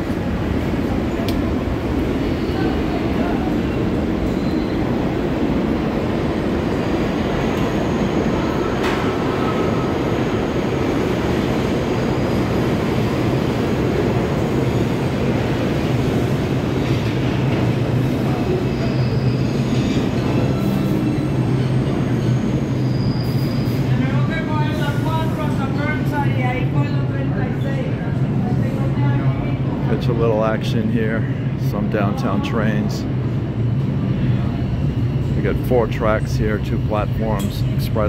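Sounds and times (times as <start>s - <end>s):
subway train wheels rumbling on rail: 0.0s - 38.0s
high wheel squeal: 4.2s - 4.9s, 18.7s - 20.1s, 20.9s - 23.9s.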